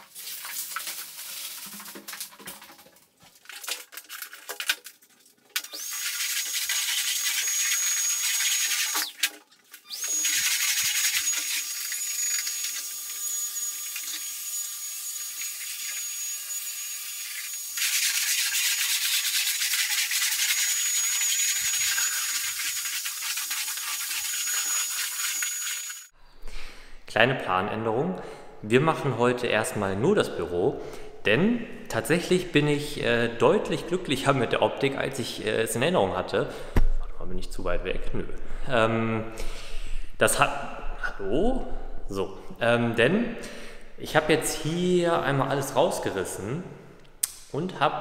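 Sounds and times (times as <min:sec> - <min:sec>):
clattering and rubbing: 0:00.0 - 0:07.2.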